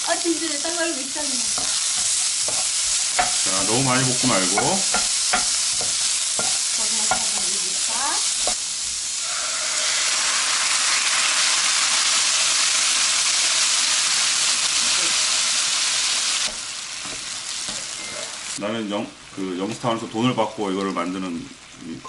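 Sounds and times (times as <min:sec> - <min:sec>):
fish frying in sauce: 0:00.0 - 0:22.0
onions sizzling in a skillet: 0:00.0 - 0:22.0
utensil scraping a pan: 0:01.5 - 0:07.8.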